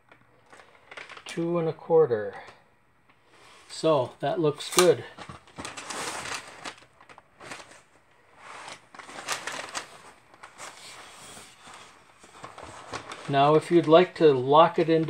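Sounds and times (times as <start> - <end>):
picture frame scraping on paper: 10.6 - 12.9.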